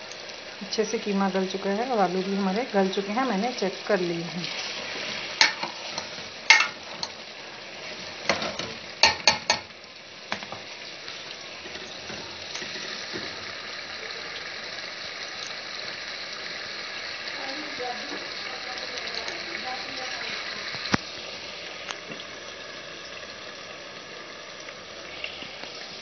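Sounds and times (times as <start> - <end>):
meat sizzling in oil: 0.0 - 26.0
metal ladle knocking against pan: 6.5 - 6.8, 8.3 - 9.7.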